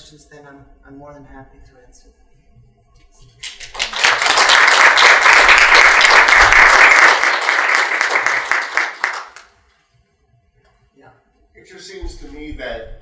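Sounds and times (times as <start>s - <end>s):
audience applauding: 3.4s - 9.6s.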